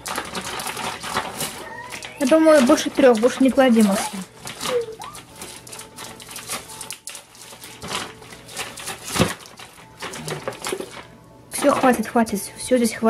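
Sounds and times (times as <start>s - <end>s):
plastic packaging crinkling: 0.0s - 12.0s.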